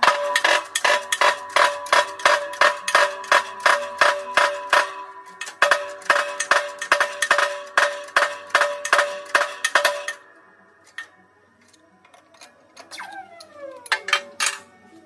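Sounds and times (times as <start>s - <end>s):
sharp metallic clicks: 0.0s - 10.2s
steel hub ringing: 0.0s - 10.3s.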